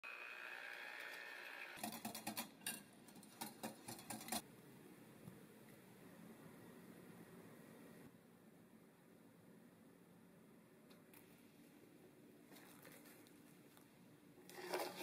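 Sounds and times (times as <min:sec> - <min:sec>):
electric hand mixer whirring: 0:00.0 - 0:01.8.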